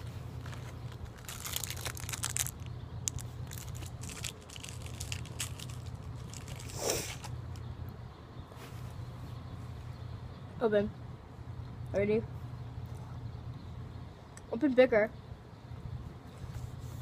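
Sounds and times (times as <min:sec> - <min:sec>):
plastic wrapper crinkling and tearing: 0:00.4 - 0:07.4.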